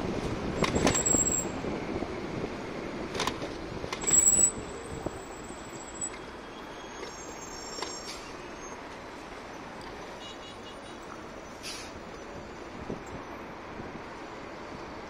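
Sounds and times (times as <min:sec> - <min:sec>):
bus driving past: 0:00.0 - 0:15.0
street traffic: 0:00.0 - 0:15.0
brief high squeal: 0:05.8 - 0:08.8.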